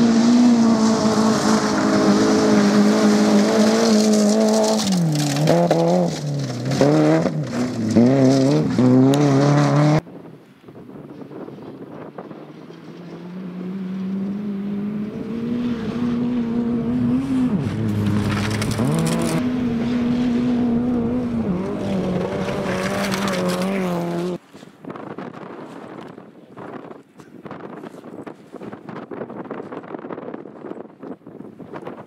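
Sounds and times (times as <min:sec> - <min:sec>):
rally car engine revving: 0:00.0 - 0:10.0, 0:12.2 - 0:24.4
tyres on gravel: 0:01.3 - 0:09.2, 0:17.6 - 0:19.4, 0:21.5 - 0:28.9
wind on microphone: 0:14.9 - 0:32.0.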